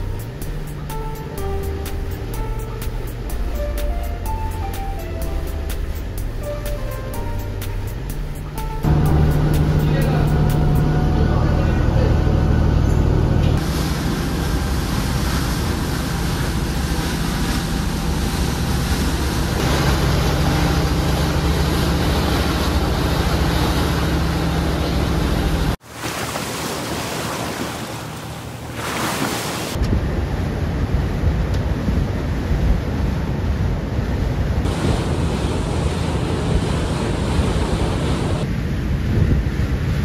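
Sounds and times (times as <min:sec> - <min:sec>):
boat engine drone: 0:00.0 - 0:30.8, 0:34.5 - 0:40.0
water washing: 0:13.6 - 0:29.8
wind on microphone: 0:29.7 - 0:40.0.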